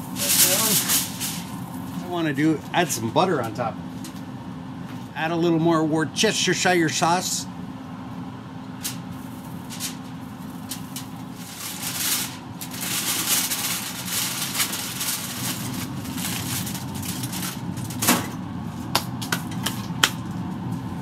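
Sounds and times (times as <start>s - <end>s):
aluminium foil crinkling: 0.0s - 2.0s, 8.8s - 18.0s
steady low hum: 0.0s - 21.0s
foil packet clicking on grill: 10.6s - 17.9s.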